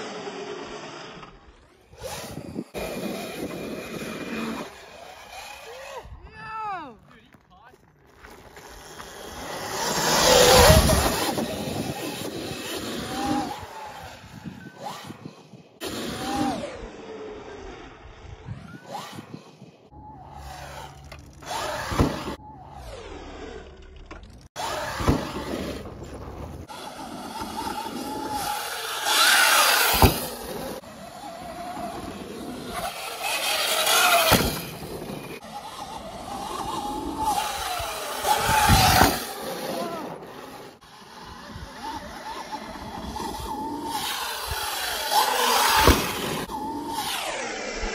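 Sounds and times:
electric motor whining: 0.0 - 6.2, 8.5 - 47.9
rushing wind noise: 9.4 - 15.3
rush of wind noise: 9.4 - 16.8, 31.5 - 40.5
sharp landing thump: 29.9 - 30.3, 34.2 - 34.8.

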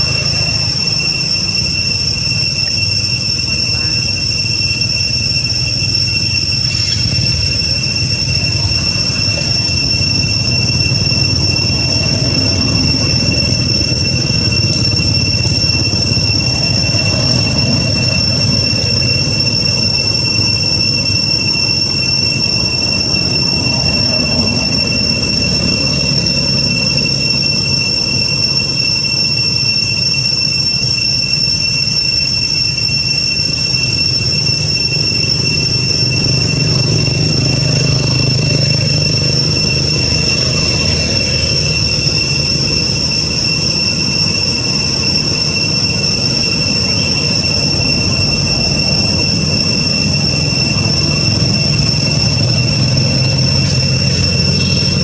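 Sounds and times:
cicadas whining: 0.0 - 55.0.

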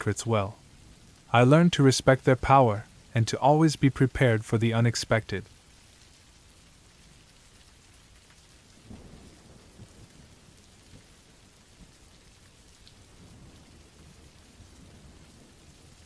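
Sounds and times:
rain hissing: 0.0 - 16.0.

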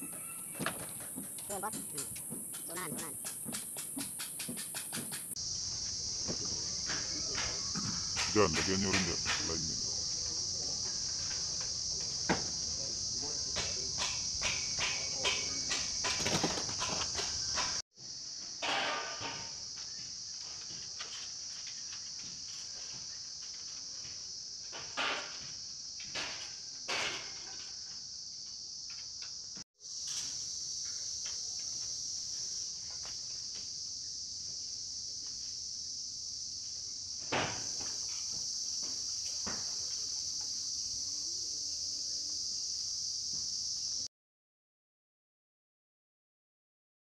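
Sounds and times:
high-pitched insect chorus: 0.0 - 44.1.

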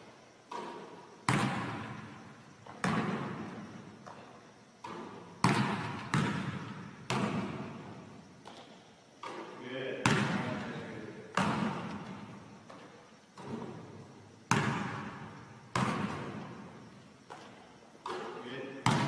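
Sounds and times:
basketball hitting the hoop: 0.5 - 3.6, 4.8 - 10.6, 11.4 - 12.8, 13.4 - 16.7, 17.3 - 19.0
basketball bouncing on gym floor: 0.5 - 19.0.

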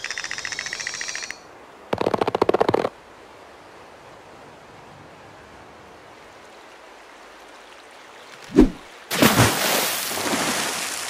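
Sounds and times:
soft sea waves: 0.0 - 11.0
loud splash into water: 8.6 - 11.0.

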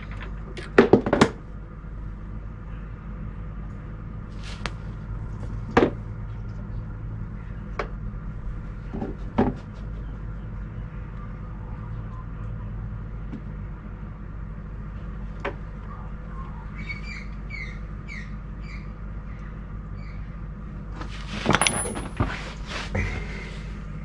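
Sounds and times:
steady low hum: 1.4 - 24.0
rustling and clinking: 21.0 - 23.3.

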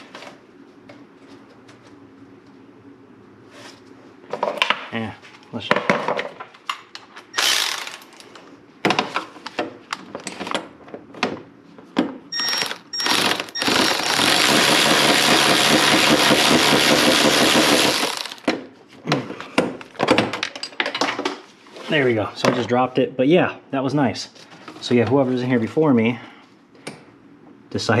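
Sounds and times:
power ratchet whirring: 7.4 - 8.1, 12.4 - 18.5.

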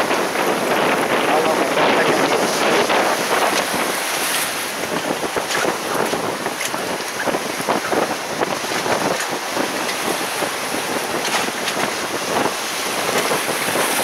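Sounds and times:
surf washing over rocks: 0.0 - 14.0
wind buffeting microphone: 0.0 - 14.0.

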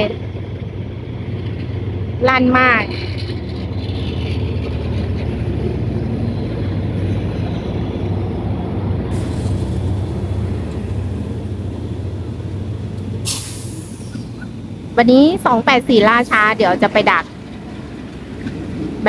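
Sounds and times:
diesel locomotive engines rumbling: 0.0 - 19.0
hiss of passing coaches: 9.0 - 11.4, 13.2 - 14.6.

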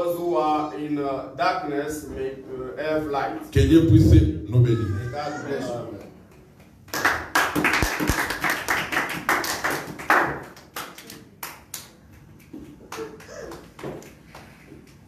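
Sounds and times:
people clapping: 5.9 - 15.0.

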